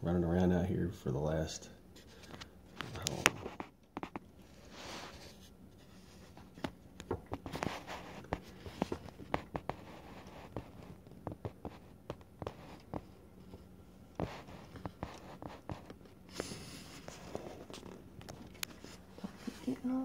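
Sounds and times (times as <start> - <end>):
scratchy rubs: 3.1 - 6.7, 7.3 - 18.0.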